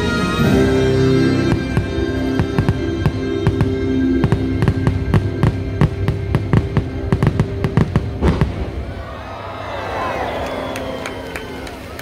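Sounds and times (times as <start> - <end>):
fireworks bursting: 0.0 - 9.1.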